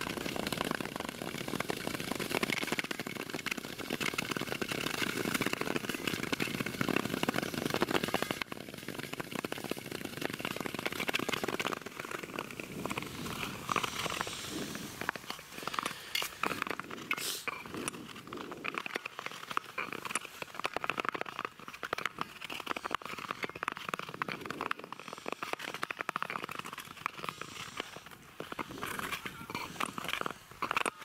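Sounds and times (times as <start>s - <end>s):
ice skates scraping on ice: 0.0s - 31.0s.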